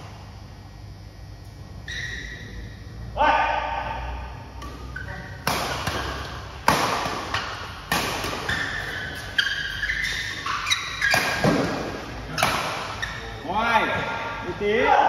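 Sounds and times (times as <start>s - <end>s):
shoes squeaking on court: 1.8s - 2.7s, 4.6s - 13.4s
racket hitting shuttlecock: 4.5s - 13.3s.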